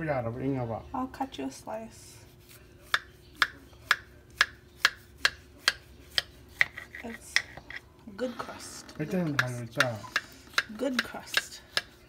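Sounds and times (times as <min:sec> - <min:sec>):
knife sawing through crisp crust: 0:02.2 - 0:03.7.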